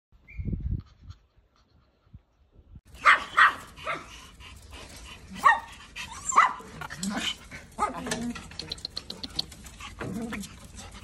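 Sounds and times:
small dogs yapping: 0:03.0 - 0:04.3, 0:05.2 - 0:11.0.

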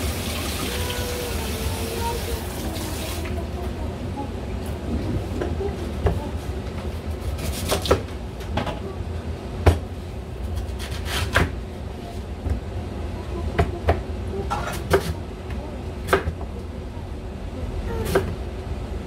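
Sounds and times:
steady low hum: 0:01.1 - 0:19.0.

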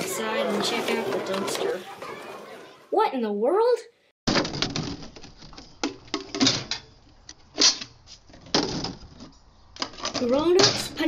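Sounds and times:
plastic bottles clicking and crackling: 0:04.3 - 0:10.4.

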